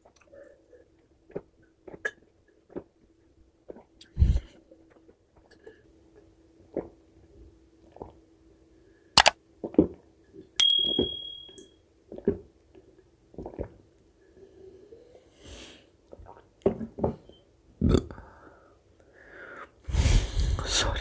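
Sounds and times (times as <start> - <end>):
mouth eating noises: 1.3 - 2.9
dish clinking: 10.6 - 11.6.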